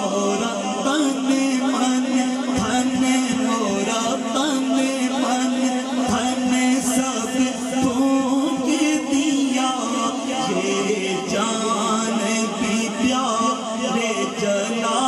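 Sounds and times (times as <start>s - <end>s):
man singing into a microphone: 0.0s - 15.0s.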